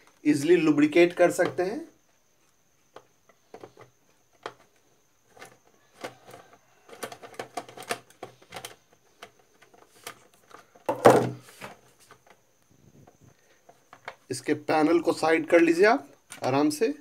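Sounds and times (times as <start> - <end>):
plastic housing clattering: 5.3 - 12.4.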